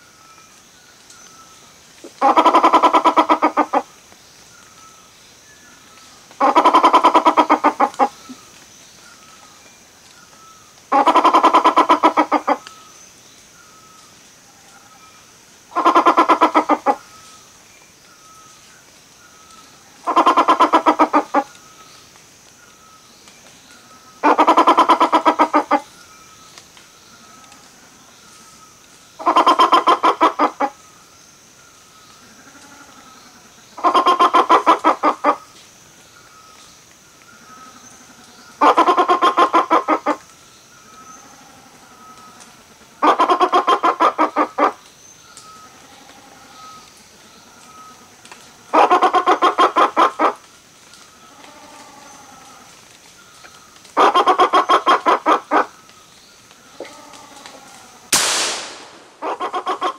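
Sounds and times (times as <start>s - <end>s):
bird harsh clucking calls: 2.1s - 3.8s, 6.4s - 8.3s, 10.9s - 12.6s, 15.7s - 17.0s, 20.0s - 21.5s, 24.2s - 25.8s, 29.2s - 30.8s, 33.8s - 35.4s, 38.6s - 40.2s, 43.0s - 44.8s, 48.7s - 50.4s, 54.0s - 55.7s, 59.2s - 59.9s
sharp crack: 58.1s - 59.4s.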